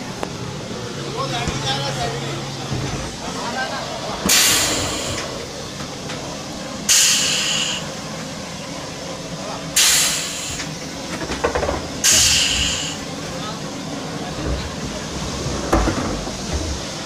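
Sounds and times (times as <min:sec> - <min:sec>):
low machine noise: 0:00.0 - 0:17.0
compressed air hiss bursts: 0:04.3 - 0:05.8, 0:06.8 - 0:08.0, 0:09.8 - 0:10.8, 0:12.0 - 0:13.1.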